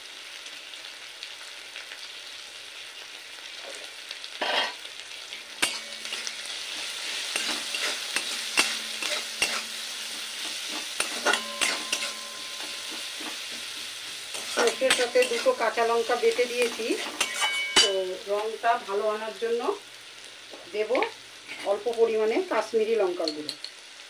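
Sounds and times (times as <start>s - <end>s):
onions sizzling in oil: 0.0s - 24.0s
metal spatula scraping a pan: 4.4s - 4.9s, 5.5s - 18.2s, 21.4s - 21.9s.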